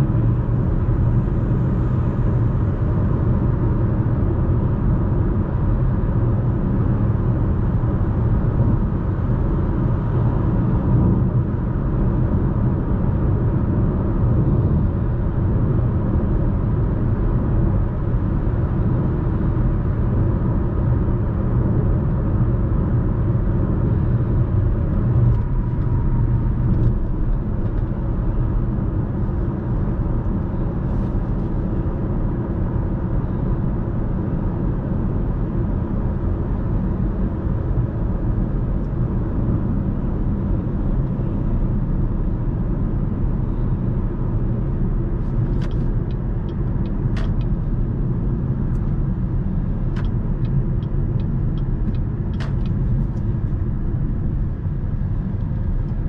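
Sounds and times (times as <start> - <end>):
car cabin road noise: 0.0 - 56.0.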